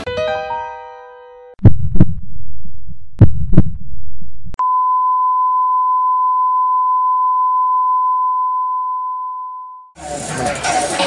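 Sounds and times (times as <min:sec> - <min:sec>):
heartbeat thumps: 0:01.6 - 0:04.6
low rumble: 0:01.6 - 0:04.6.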